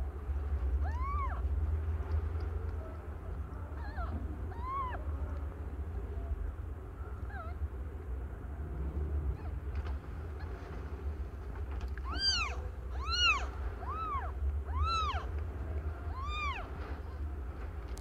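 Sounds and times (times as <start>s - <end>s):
low steady hum: 0.0s - 18.0s
cat mewing: 0.7s - 1.6s, 3.6s - 5.6s, 7.2s - 7.6s, 11.9s - 15.3s, 16.1s - 17.1s.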